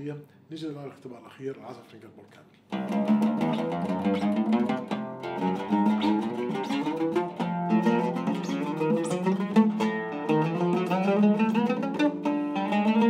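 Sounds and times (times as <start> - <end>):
oud plucked notes: 2.7 - 13.0.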